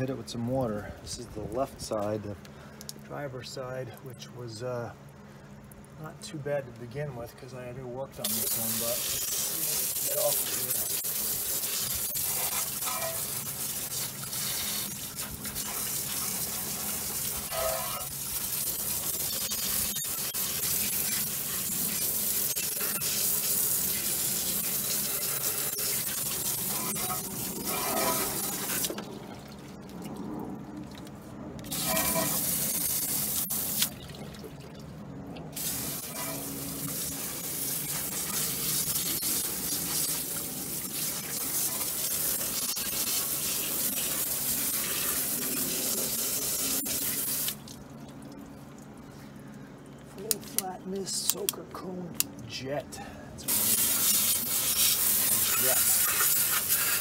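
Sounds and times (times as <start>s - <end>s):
water hissing from a hose nozzle: 8.2s - 29.0s, 31.7s - 34.0s, 35.5s - 47.6s, 53.5s - 57.0s.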